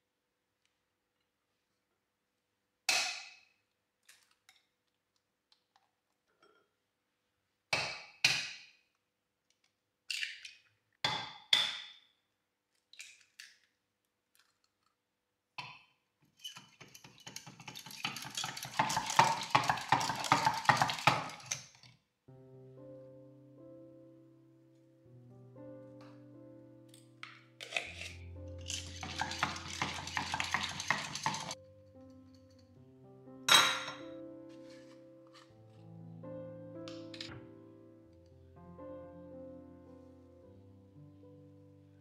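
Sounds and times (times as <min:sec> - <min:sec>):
utensils clinking against dishes: 0:16.4 - 0:21.6, 0:27.6 - 0:31.6
utensil beating against bowl: 0:16.6 - 0:21.6, 0:28.7 - 0:31.6.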